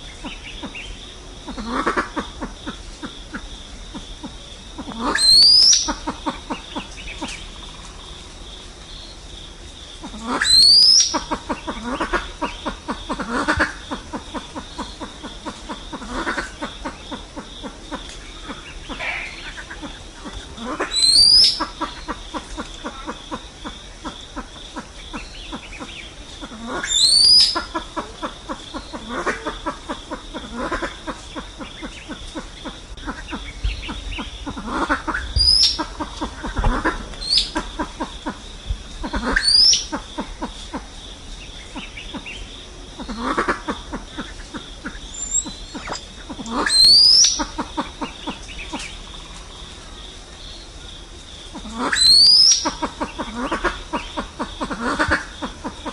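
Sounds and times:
pheasants clucking: 0.0s - 8.3s, 9.9s - 50.0s, 51.4s - 55.9s
pheasants whistled squeals: 5.1s - 6.0s, 10.4s - 11.2s, 20.9s - 21.7s, 26.8s - 27.7s, 35.2s - 35.9s, 39.1s - 40.0s, 45.1s - 47.5s, 51.8s - 52.8s.

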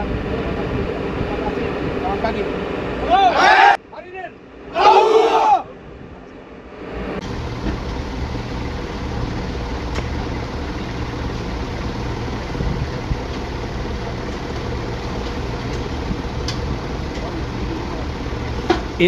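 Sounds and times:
engine idling: 5.9s - 19.0s.

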